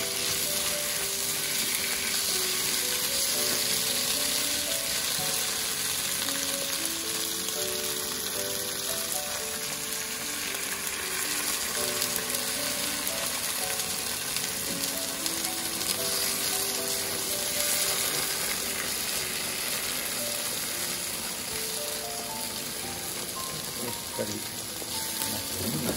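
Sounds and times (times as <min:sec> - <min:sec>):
food sizzling in a pan: 0:00.0 - 0:25.9
light background melody: 0:00.0 - 0:25.9.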